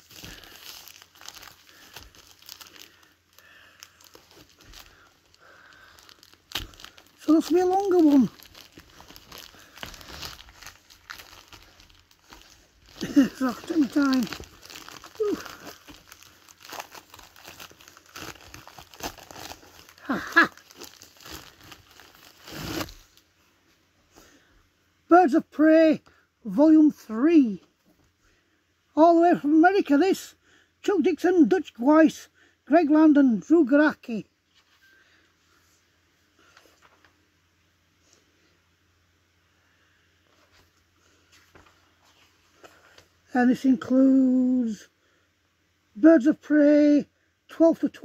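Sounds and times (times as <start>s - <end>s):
packaging crinkling and rustling: 0.0s - 23.3s.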